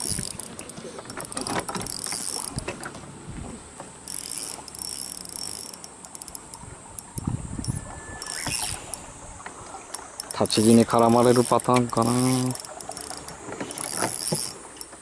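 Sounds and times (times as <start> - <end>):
fishing reel clicking and ratcheting: 0.0 - 2.8, 3.8 - 15.0
high buzz: 4.0 - 14.9.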